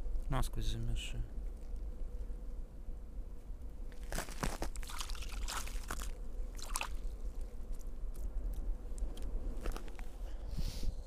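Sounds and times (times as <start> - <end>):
frozen moss crunching: 3.9 - 8.2.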